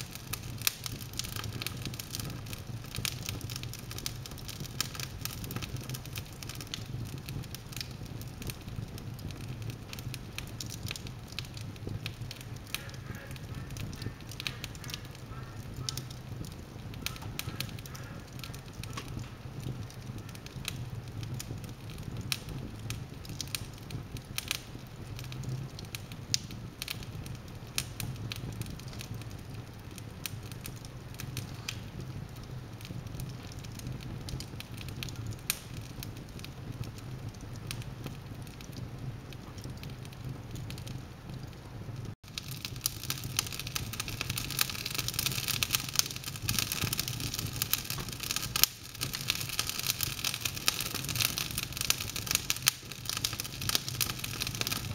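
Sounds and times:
wood fire crackling and popping: 0:00.0 - 0:54.9.

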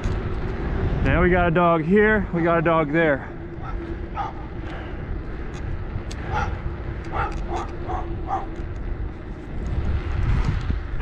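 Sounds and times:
bicycle tyre noise: 0:00.0 - 0:11.0
wind rumble: 0:00.0 - 0:11.0
dogs barking: 0:03.6 - 0:04.6, 0:06.2 - 0:08.6.

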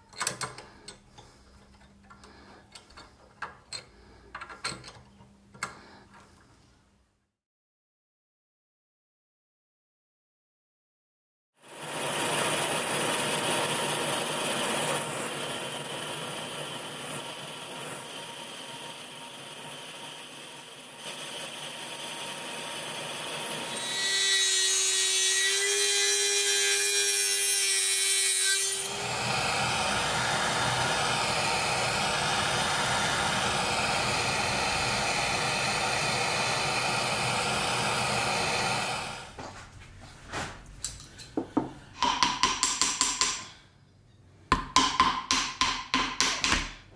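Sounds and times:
rotary cut-off disc whining: 0:11.7 - 0:24.7, 0:28.6 - 0:39.3
metal lathe cutting: 0:11.7 - 0:39.3.

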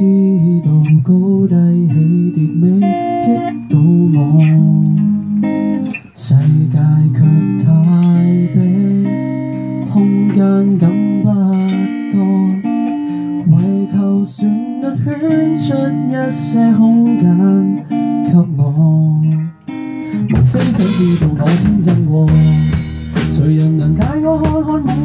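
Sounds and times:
man singing a pop ballad: 0:00.0 - 0:05.4, 0:06.2 - 0:19.5, 0:20.1 - 0:25.0
acoustic guitar: 0:00.0 - 0:25.0
electric bass: 0:00.0 - 0:25.0
drum kit with cymbal crashes: 0:11.5 - 0:13.9, 0:20.3 - 0:25.0.

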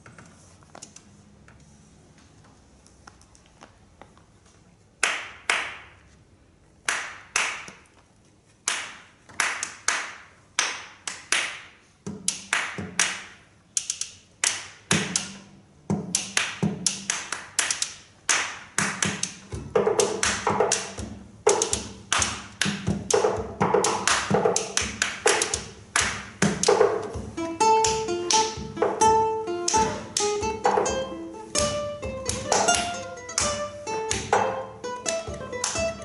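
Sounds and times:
hands tapping instrument bodies: 0:08.7 - 0:36.0
plucked guitar notes: 0:27.0 - 0:36.0.

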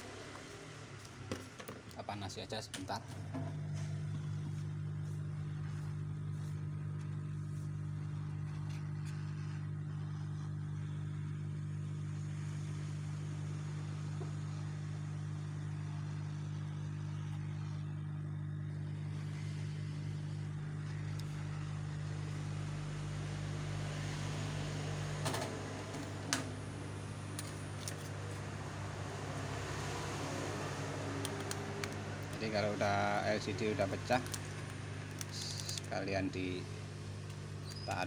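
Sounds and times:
hot-air gun fan hum: 0:00.0 - 0:38.0.

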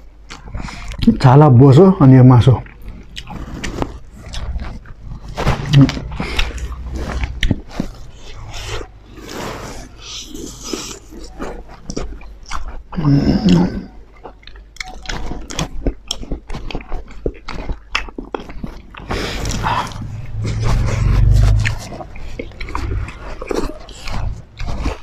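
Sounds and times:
chewing and lip smacking: 0:02.6 - 0:25.0
low voiced grunt: 0:13.0 - 0:13.9.

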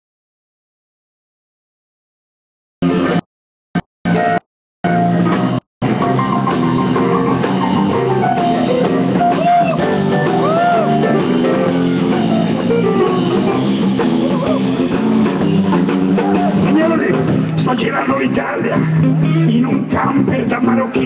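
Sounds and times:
drum kit: 0:04.0 - 0:21.0
electric keyboard: 0:04.1 - 0:17.7
electric guitar: 0:04.1 - 0:21.0.

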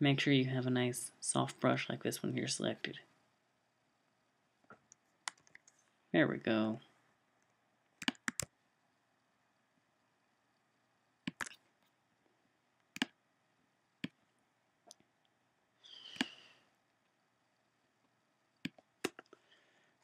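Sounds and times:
computer mouse clicks: 0:04.7 - 0:05.8, 0:07.4 - 0:08.5, 0:11.3 - 0:11.6, 0:12.8 - 0:13.2, 0:16.1 - 0:16.4, 0:18.6 - 0:19.4.

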